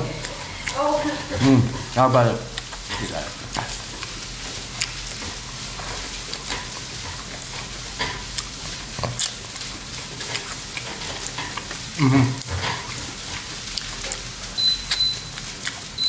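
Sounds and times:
rice sizzling in a pan: 0.1 - 16.0
chewing clicks: 2.5 - 15.9.

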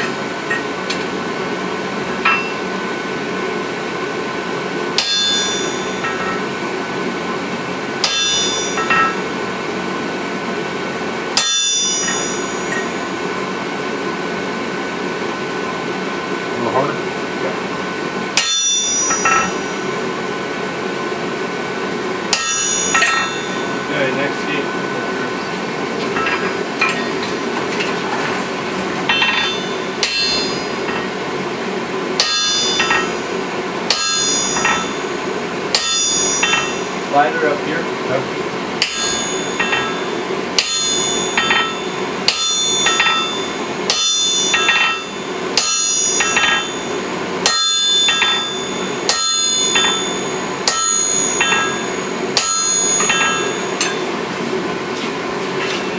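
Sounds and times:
steady hum: 0.0 - 55.9
sledgehammer striking hot metal: 2.2 - 2.7, 5.0 - 6.5, 8.0 - 9.4, 11.4 - 13.1, 18.4 - 20.0, 22.3 - 24.2, 26.1 - 27.9, 29.0 - 31.2, 32.2 - 33.3, 33.9 - 37.3, 38.8 - 54.3.

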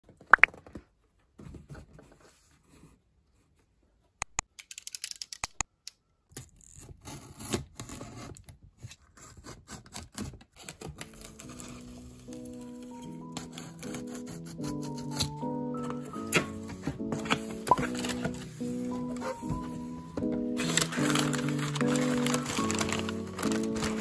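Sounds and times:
knife slicing packing tape: 9.2 - 12.7, 13.3 - 16.6, 20.6 - 24.0
soft music: 10.8 - 24.0.

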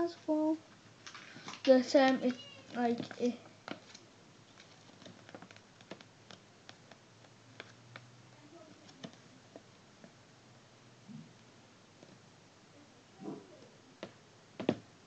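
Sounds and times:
paper and plastic parts clicking: 1.0 - 8.1.

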